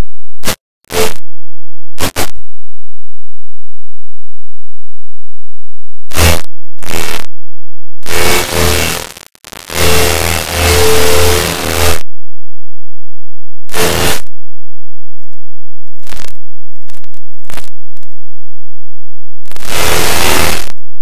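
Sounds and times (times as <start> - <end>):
harsh digital static noise: 0.0 - 1.2, 2.0 - 2.4, 6.1 - 7.3, 8.0 - 12.1, 13.7 - 14.3, 15.2 - 18.2, 19.4 - 20.8.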